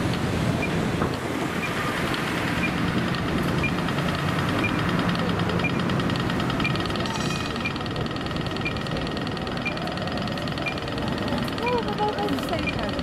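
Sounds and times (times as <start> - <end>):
street noise: 0.0 - 13.0
tram low hum: 0.0 - 13.0
fast high ticks: 1.6 - 13.0
short high beeps: 6.6 - 7.9.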